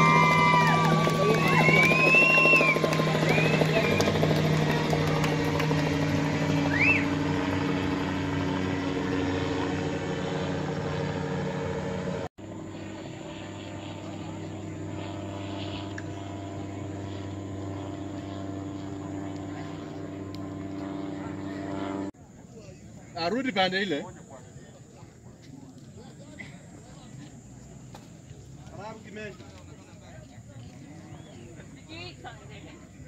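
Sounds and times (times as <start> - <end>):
car engine running: 0.0 - 12.6
quiet engine drone: 0.0 - 24.9.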